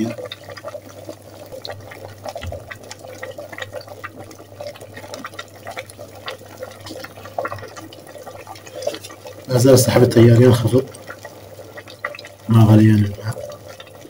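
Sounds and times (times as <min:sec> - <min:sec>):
water boiling and popping: 0:00.0 - 0:14.0.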